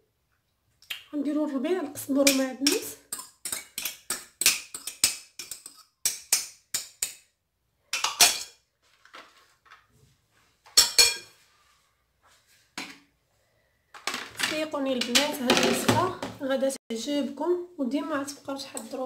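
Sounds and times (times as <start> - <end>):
ceramic bowl clinking against glass: 10.8 - 11.3.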